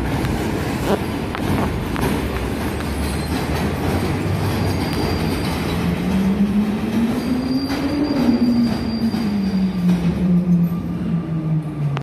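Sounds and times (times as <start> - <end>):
train rumble with wheel clatter: 0.0 - 12.0
faint high wheel squeal: 3.0 - 3.5, 4.5 - 6.1, 7.0 - 11.1.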